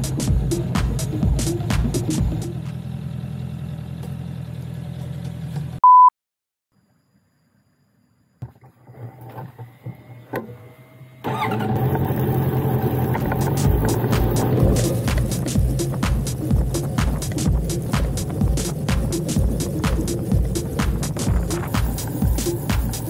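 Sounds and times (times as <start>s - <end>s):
motorcycle engine idling: 0.0s - 5.8s, 11.2s - 23.0s
motorcycle riding off: 0.0s - 5.8s, 11.2s - 23.0s
electronic bleep tone: 5.8s - 6.1s.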